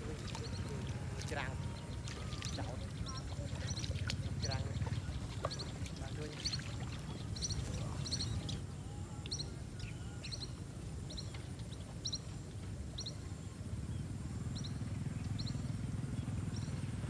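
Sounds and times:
steady low rumble: 0:00.0 - 0:11.8.

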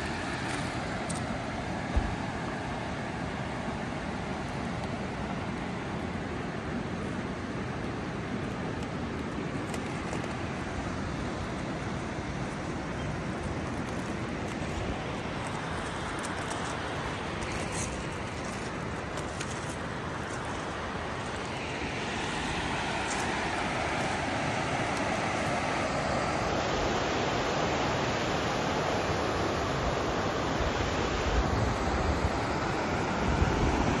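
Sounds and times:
whitewater rapids rushing: 0:00.0 - 0:34.0
wind buffeting microphone: 0:29.9 - 0:34.0.

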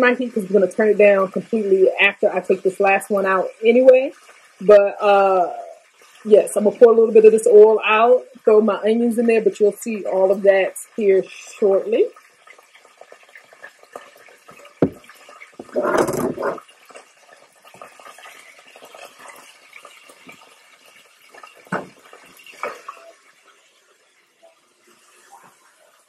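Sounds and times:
pan knocking: 0:14.8 - 0:16.6.

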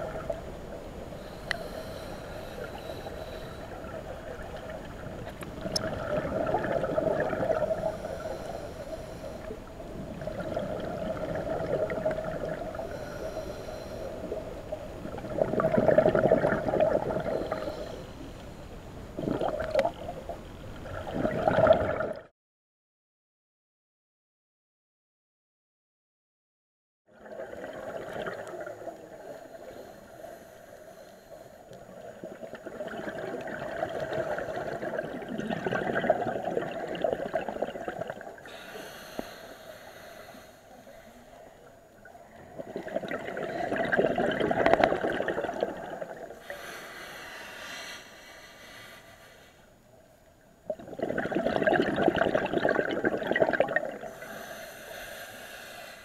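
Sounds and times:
regulator hiss: 0:01.1 - 0:04.0, 0:38.4 - 0:41.7, 0:54.1 - 0:56.0
bubbles gurgling underwater: 0:03.8 - 0:08.0, 0:09.9 - 0:12.9, 0:14.2 - 0:17.7, 0:19.2 - 0:22.3, 0:27.1 - 0:29.4, 0:31.9 - 0:38.5, 0:42.4 - 0:46.4, 0:50.6 - 0:54.1.

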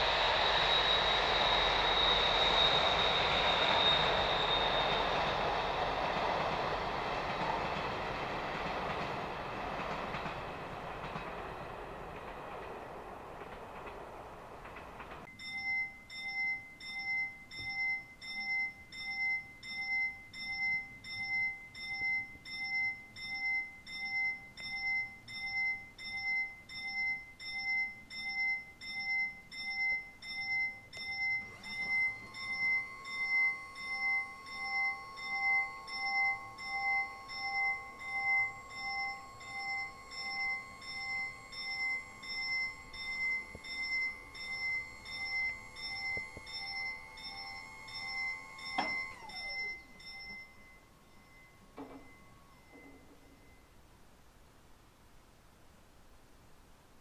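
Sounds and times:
level-crossing warning bell ringing: 0:00.0 - 0:54.0
steady hum of barrier arm: 0:00.0 - 0:54.0.

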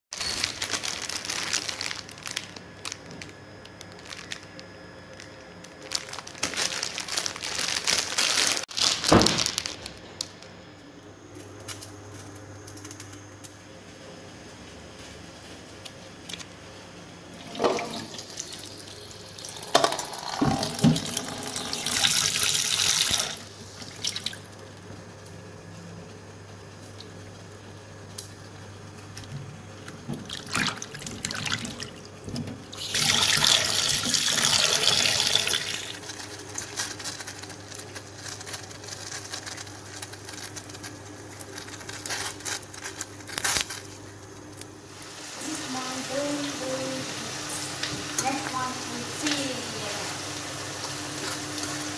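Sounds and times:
tap water running into a bowl: 0:17.4 - 0:24.4, 0:30.2 - 0:36.0.

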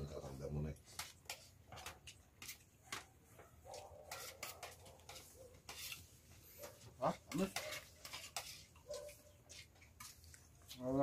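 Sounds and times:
cutlery clinking on plates: 0:03.7 - 0:10.2.

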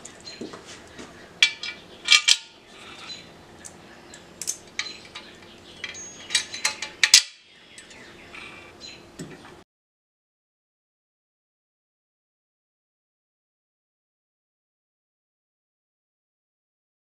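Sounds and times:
steel parts clanking: 0:01.4 - 0:02.6, 0:04.4 - 0:08.0.

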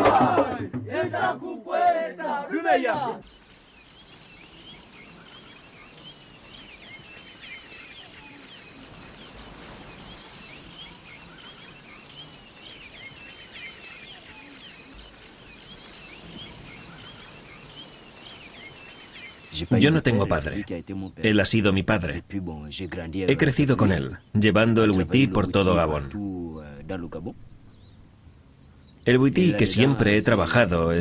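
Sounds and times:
birds chirping: 0:00.0 - 0:31.0
faint outdoor background noise: 0:00.0 - 0:31.0.

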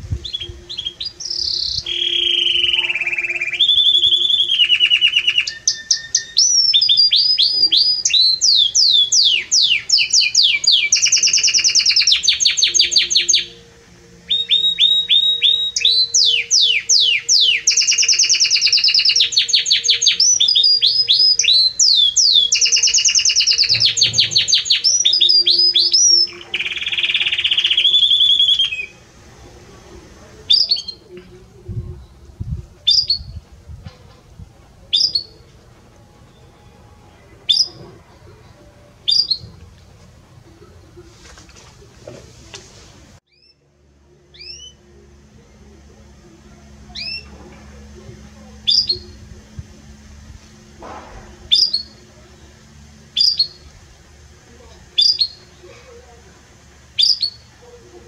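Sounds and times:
canary singing trills: 0:00.0 - 0:33.5, 0:34.9 - 0:39.6, 0:43.3 - 0:58.0
canary chirps: 0:00.2 - 0:29.1, 0:30.4 - 0:31.1, 0:32.9 - 0:33.4, 0:34.9 - 0:35.4, 0:36.4 - 0:37.9, 0:38.6 - 0:39.5, 0:43.3 - 0:43.6, 0:44.3 - 0:44.9, 0:46.7 - 0:50.7, 0:51.4 - 0:53.7, 0:54.9 - 0:56.0, 0:56.9 - 0:57.8.

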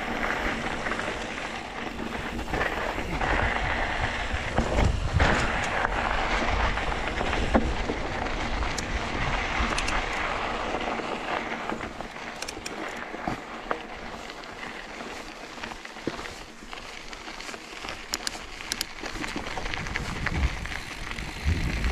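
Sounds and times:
bike clicks and knocks: 0:00.0 - 0:21.9
tyres rolling on trail: 0:00.0 - 0:21.9
wind rushing over microphone: 0:02.2 - 0:10.8, 0:19.5 - 0:21.9.

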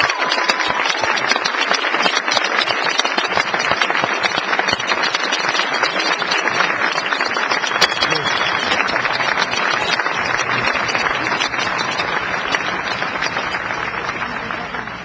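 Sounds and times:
crowd applauding: 0:00.0 - 0:15.0
whistle or shout: 0:07.7 - 0:08.8.

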